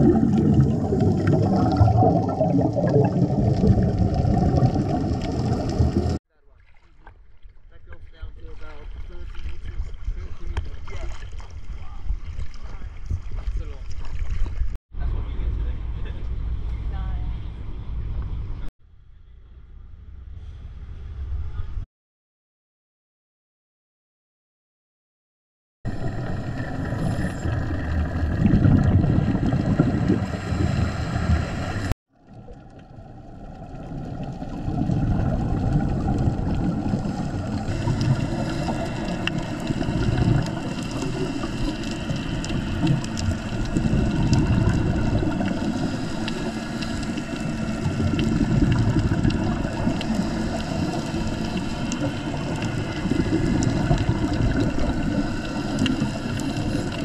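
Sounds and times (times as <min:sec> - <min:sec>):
muffled underwater wash: 0:00.0 - 0:06.2, 0:25.9 - 0:57.0
regulator exhale bubbles: 0:00.0 - 0:06.2, 0:25.9 - 0:57.0.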